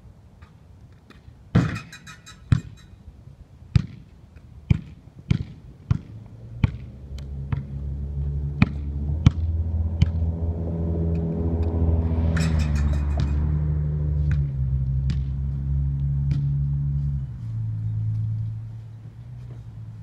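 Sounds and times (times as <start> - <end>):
basketball bouncing on concrete: 1.6 - 2.8, 3.7 - 4.0, 4.7 - 6.9
low droning hum: 6.8 - 20.0.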